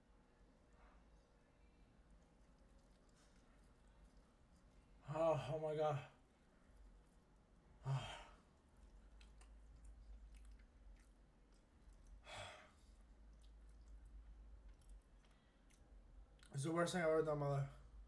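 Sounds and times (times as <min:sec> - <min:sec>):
faint low room hum: 0:00.0 - 0:18.0
man sighing through pursed lips: 0:07.8 - 0:08.3.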